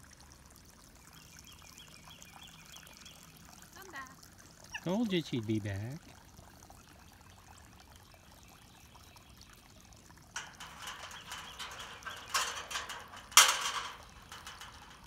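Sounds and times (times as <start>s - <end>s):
puppy paws rattling metal gate: 10.4s - 15.0s.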